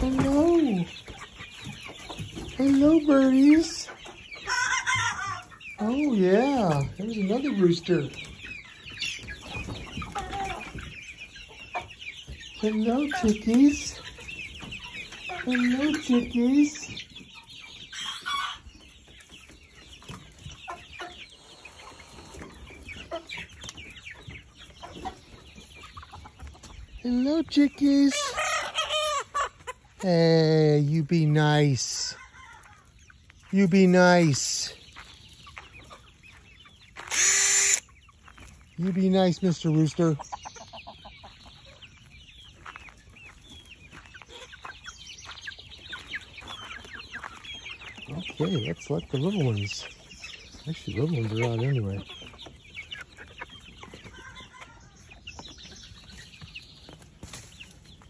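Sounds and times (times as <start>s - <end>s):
chickens clucking: 0.0s - 58.0s.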